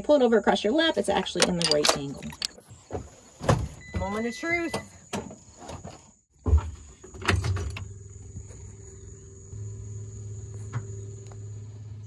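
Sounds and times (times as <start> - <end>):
steady low electrical hum: 7.4 - 12.0
thump in cab: 10.5 - 11.2.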